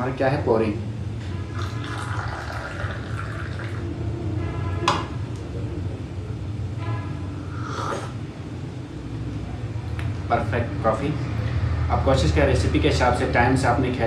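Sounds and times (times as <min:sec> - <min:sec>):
coffee pouring into glass cup: 0:01.5 - 0:03.9.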